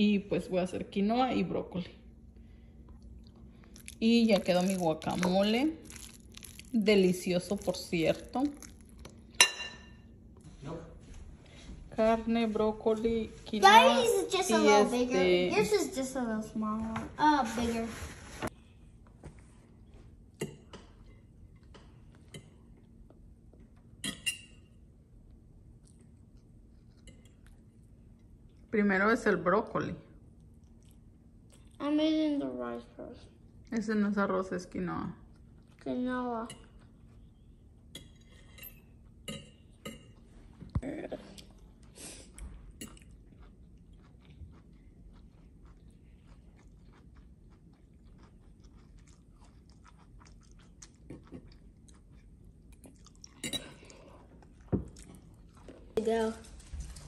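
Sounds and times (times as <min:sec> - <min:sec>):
child chewing food: 0:02.4 - 0:09.4, 0:18.5 - 0:28.7, 0:30.2 - 0:31.9, 0:35.2 - 0:57.0.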